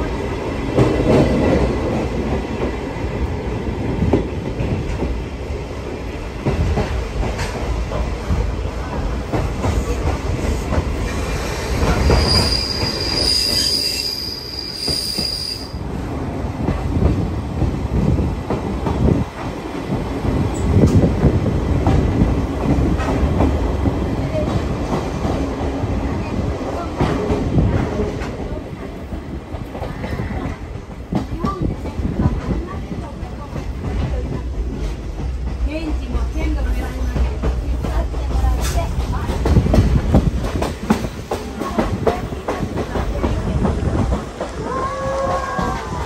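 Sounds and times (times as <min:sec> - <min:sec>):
train wheels rumbling on rails: 0:00.0 - 0:46.0
high wheel squeal: 0:12.0 - 0:15.8.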